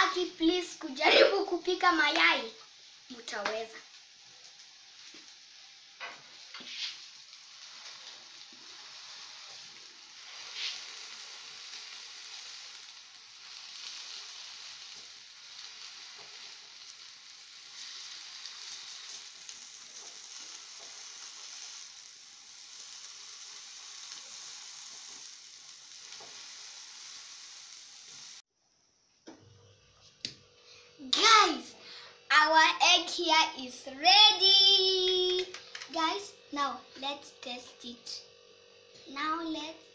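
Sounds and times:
omelette sizzling in a pan: 0:00.0 - 0:39.9.

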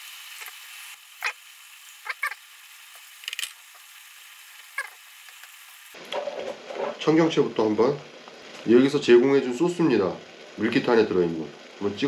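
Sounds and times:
broth simmering with hiss: 0:00.0 - 0:06.0.

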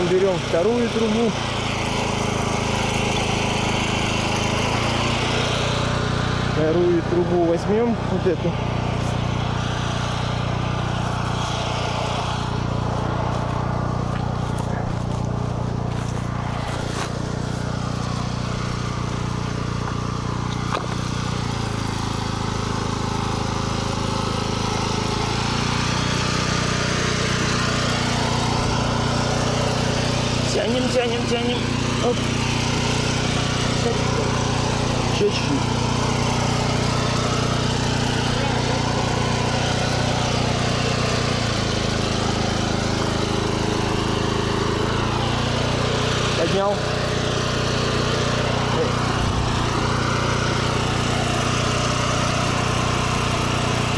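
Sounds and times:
generator engine running: 0:00.0 - 0:53.9.

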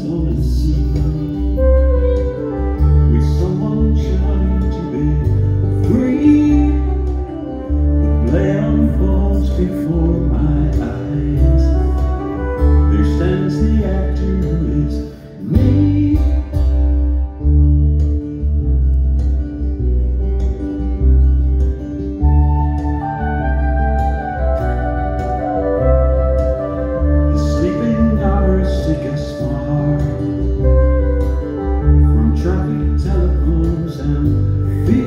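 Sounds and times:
man singing: 0:00.0 - 0:17.4, 0:25.8 - 0:35.0
low bass: 0:00.0 - 0:35.0
strummed acoustic guitar: 0:00.0 - 0:35.0
flute: 0:00.9 - 0:16.7, 0:22.2 - 0:35.0.

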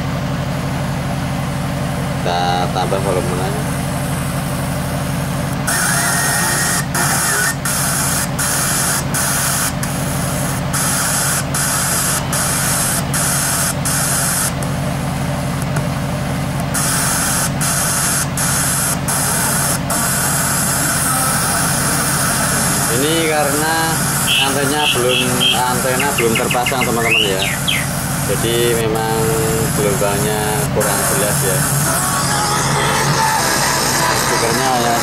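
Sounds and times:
radio static hissing: 0:05.7 - 0:09.0, 0:16.8 - 0:35.0.

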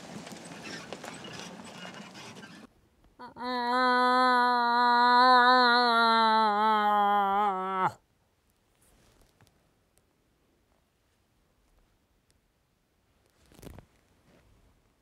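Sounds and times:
tyres on gravel road: 0:00.0 - 0:02.7
moose call moan by mouth: 0:03.2 - 0:08.0.

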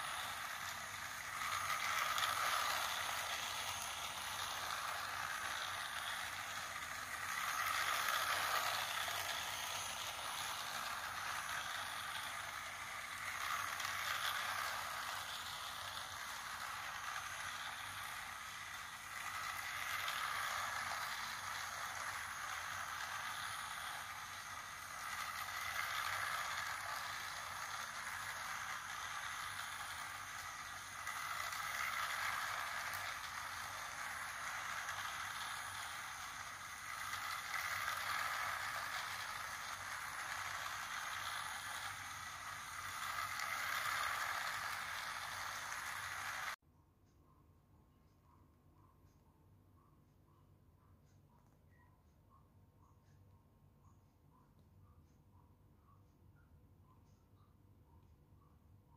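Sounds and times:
toy train whirring and rattling: 0:00.0 - 0:46.6.

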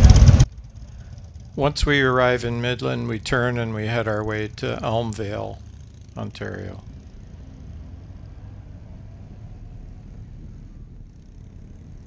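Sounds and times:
motorcycle engine drone: 0:00.0 - 0:12.0
road noise: 0:00.0 - 0:12.0.

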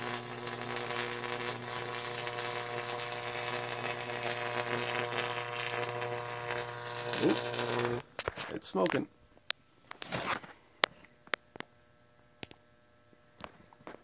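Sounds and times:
electric arc crackling: 0:00.0 - 0:08.9
electrical arc hum-buzz: 0:00.0 - 0:14.0.

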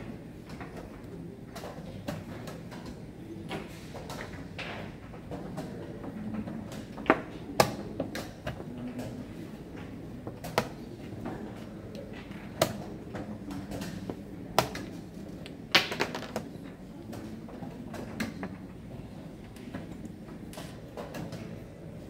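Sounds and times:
chess pieces set down on board: 0:15.7 - 0:16.5.

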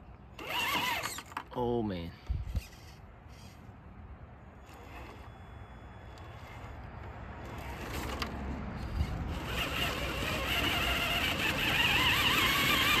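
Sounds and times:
electric motor whining: 0:00.4 - 0:01.3, 0:07.5 - 0:13.0.

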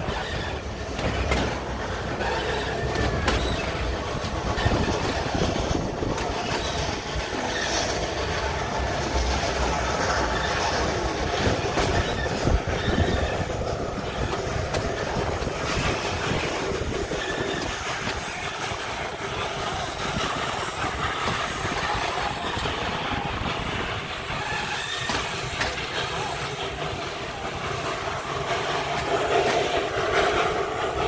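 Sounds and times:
train carriages rumbling: 0:00.0 - 0:31.0
wheels clicking over rails: 0:00.0 - 0:31.0.

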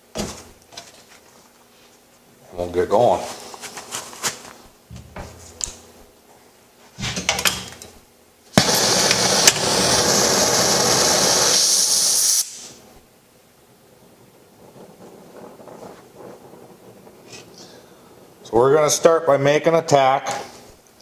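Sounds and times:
gas flame hissing: 0:02.4 - 0:21.0
torch ignition pop: 0:08.5 - 0:12.8.

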